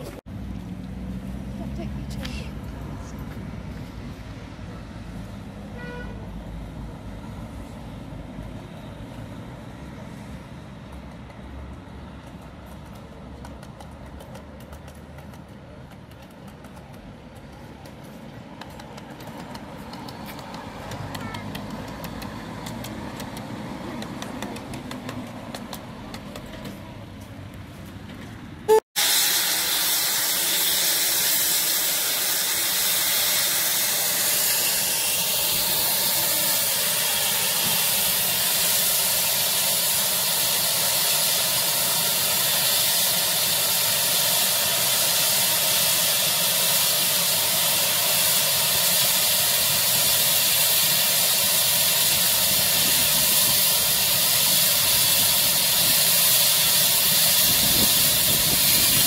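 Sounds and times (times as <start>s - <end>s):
steam hissing from safety valves: 28.7s - 59.0s.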